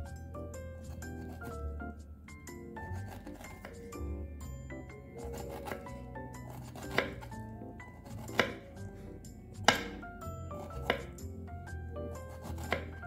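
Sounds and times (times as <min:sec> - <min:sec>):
knife knocking on wooden board: 0:08.2 - 0:08.6, 0:09.6 - 0:10.0, 0:10.8 - 0:11.2.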